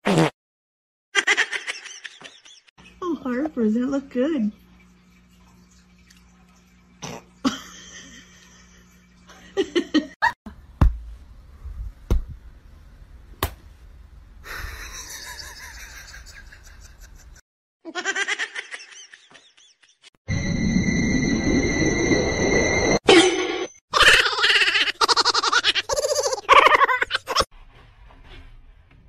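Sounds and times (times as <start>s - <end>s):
person laughing: 7.4s - 10.4s, 14.5s - 20.1s, 24.0s - 27.5s.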